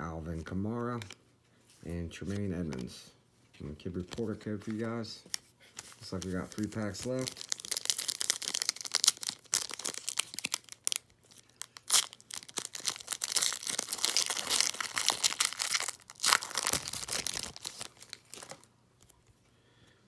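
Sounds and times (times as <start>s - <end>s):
foil wrapper crackling: 5.9s - 18.7s.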